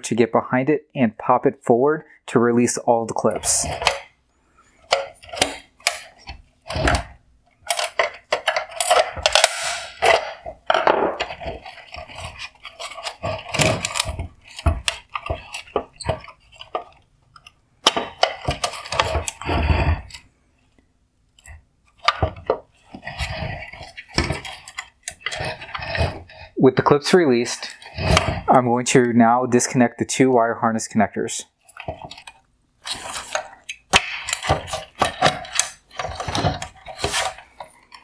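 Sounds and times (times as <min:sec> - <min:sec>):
screwdriver prying plastic clips: 0:04.9 - 0:10.5, 0:11.2 - 0:19.4.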